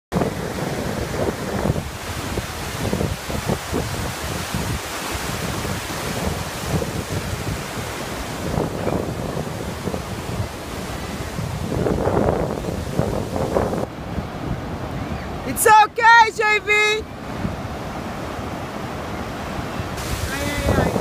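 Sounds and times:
ocean surf breaking: 0.1 - 21.0
wind buffeting microphone: 0.1 - 21.0.

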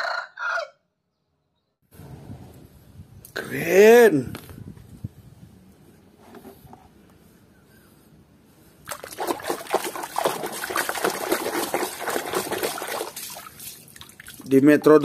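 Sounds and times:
water splashing in a tub: 8.8 - 15.0.

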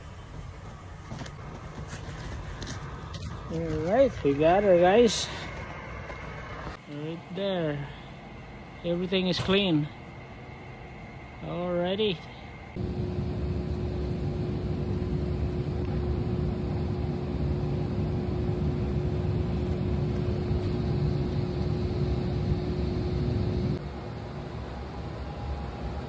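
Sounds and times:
gas burner rumbling: 12.7 - 23.8.

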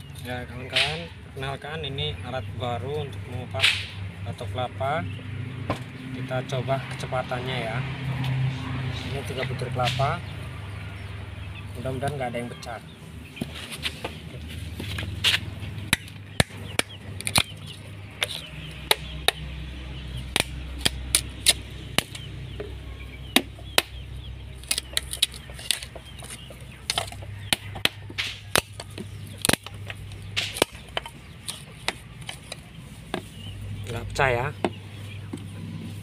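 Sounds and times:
coconut shell cracking: 14.9 - 19.5, 20.2 - 24.0, 24.6 - 33.2.

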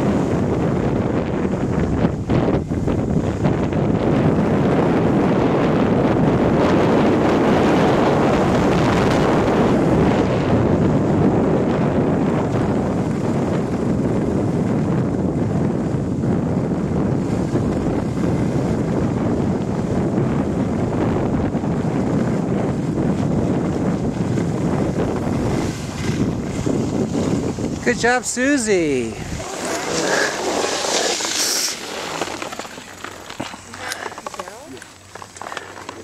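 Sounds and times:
wind buffeting microphone: 0.0 - 36.0
skis sliding over snow: 23.2 - 36.0.

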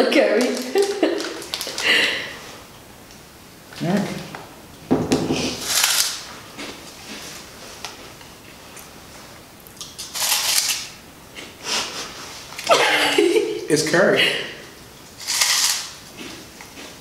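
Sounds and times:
corn snack crunching: 0.4 - 1.9, 5.6 - 6.8, 9.7 - 10.9, 15.1 - 17.0.

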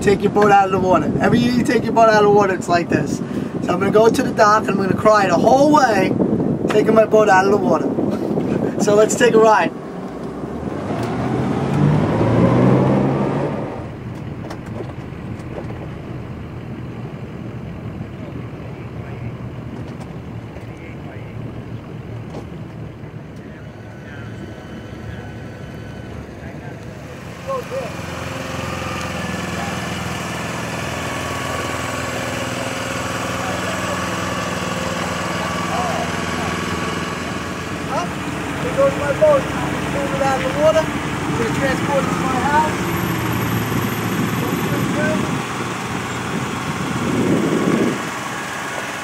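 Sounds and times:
wind and water rushing: 0.0 - 14.0, 27.0 - 49.0
motorboat engine running: 0.0 - 49.0.

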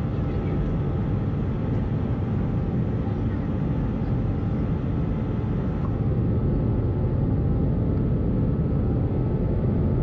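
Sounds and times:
airplane cabin airflow and engine drone: 0.0 - 10.0.

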